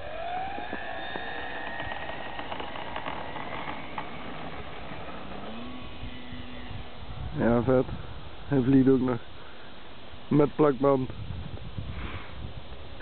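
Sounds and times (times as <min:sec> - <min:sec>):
model plane electric motor whine: 0:00.0 - 0:07.4.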